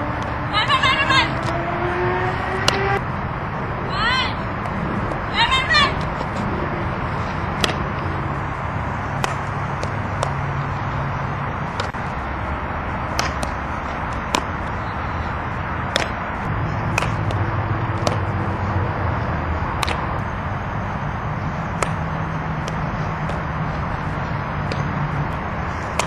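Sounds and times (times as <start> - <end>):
softballs struck and caught: 1.4 - 1.6, 2.6 - 3.0, 7.5 - 8.1, 9.1 - 10.4, 11.7 - 12.1, 13.1 - 14.8, 15.8 - 18.4, 19.7 - 20.2, 21.7 - 25.0, 25.8 - 26.0.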